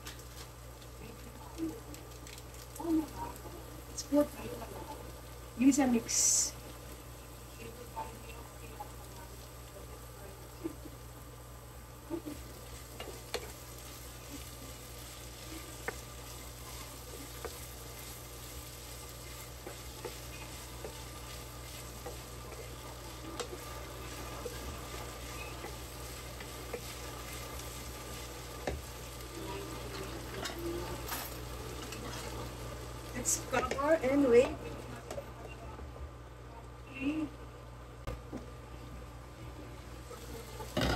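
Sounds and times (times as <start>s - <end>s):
food sizzling in a frying pan: 0.0s - 35.4s, 39.0s - 40.9s
spatula tapping and scraping pan: 12.6s - 13.9s, 15.7s - 29.0s.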